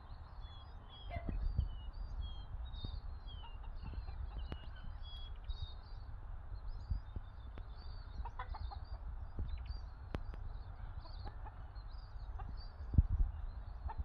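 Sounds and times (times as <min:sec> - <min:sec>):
steady low rumble: 0:00.0 - 0:14.0
wild birds chirping: 0:00.0 - 0:14.0
rooster clucking: 0:08.2 - 0:09.0, 0:10.8 - 0:12.6.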